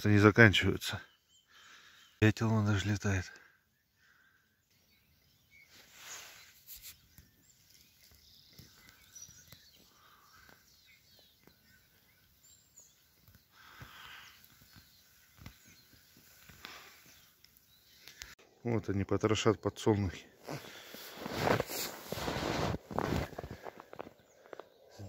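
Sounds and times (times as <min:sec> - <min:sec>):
songbirds chirping: 0:00.0 - 0:25.0
rustling: 0:20.5 - 0:24.5.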